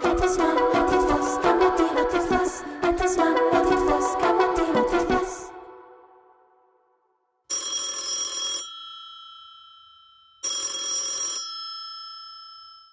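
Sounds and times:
song: 0.0 - 6.4
telephone bell ringing: 7.5 - 12.9.

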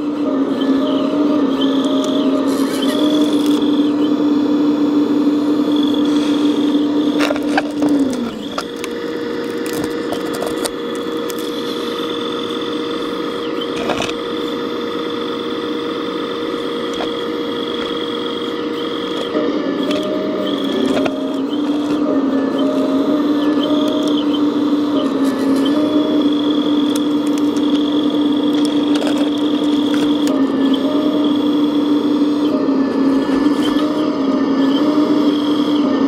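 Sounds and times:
high steady whine: 0.0 - 36.0
toy excavator motor hum: 0.0 - 36.0
clicks: 25.0 - 30.4.

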